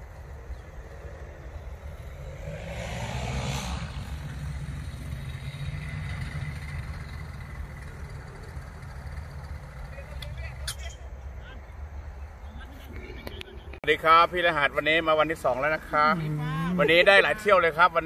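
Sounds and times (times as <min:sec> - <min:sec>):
paramotor engine and propeller: 0:00.2 - 0:10.6.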